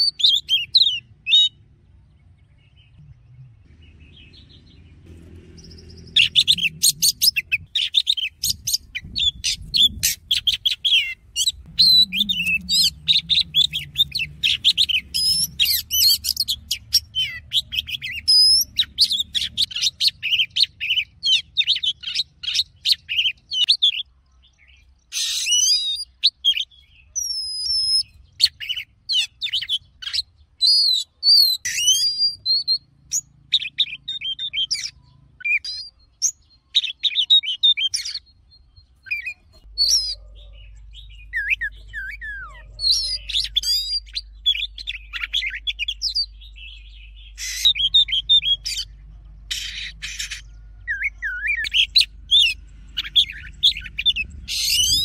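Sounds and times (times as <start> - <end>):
harsh raspy bird notes: 3.6 - 23.7, 39.0 - 55.0
bird singing whistled phrases: 6.1 - 24.0, 25.2 - 38.2, 39.0 - 48.9, 49.5 - 55.0.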